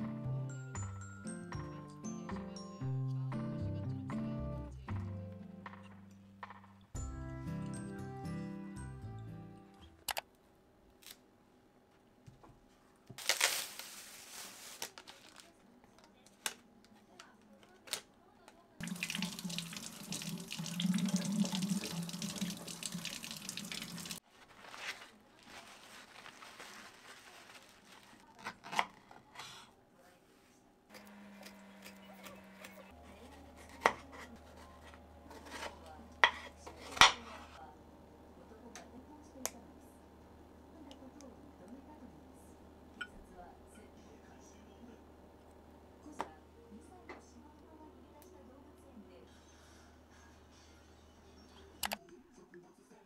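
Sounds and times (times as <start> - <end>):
tap running into sink: 18.8 - 24.2
kitchen clicks and knocks: 35.4 - 37.6.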